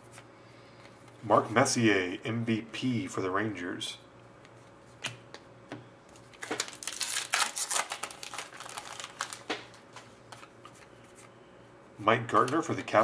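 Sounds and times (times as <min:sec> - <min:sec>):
foil wrapper crinkling: 0:06.2 - 0:09.8.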